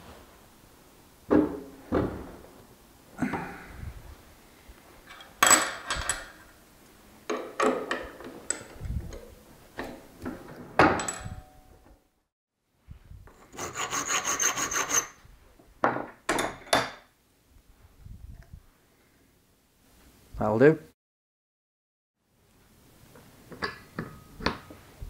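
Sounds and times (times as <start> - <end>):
rasping strokes on metal: 13.4 - 15.2.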